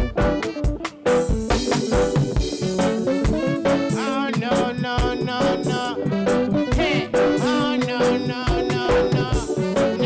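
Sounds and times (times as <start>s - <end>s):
reggae band playing: 0.0s - 10.0s
man singing: 3.5s - 10.0s.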